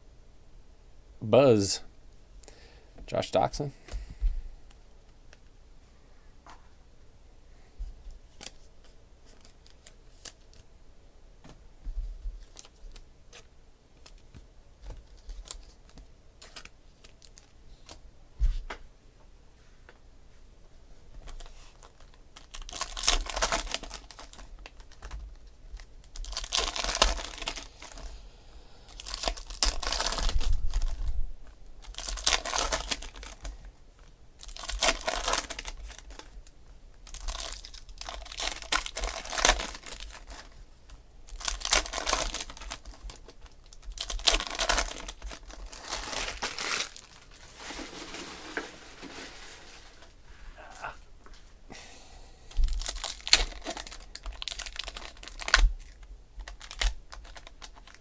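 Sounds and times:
foil wrappers tearing and crinkling: 21.3s - 28.1s, 28.9s - 31.1s, 31.8s - 36.4s, 37.0s - 40.6s, 41.3s - 50.0s, 52.7s - 58.0s.

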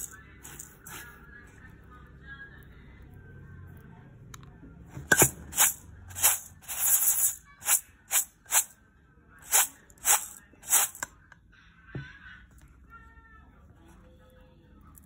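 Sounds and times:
rice rustling in metal bowl: 5.0s - 8.7s, 9.4s - 11.1s.

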